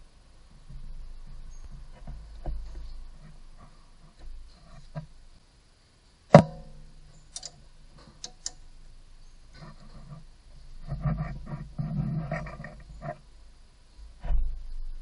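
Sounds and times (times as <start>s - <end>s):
quiet handling of engine parts: 0.0s - 5.4s, 6.3s - 15.0s
light clicks: 7.3s - 8.6s.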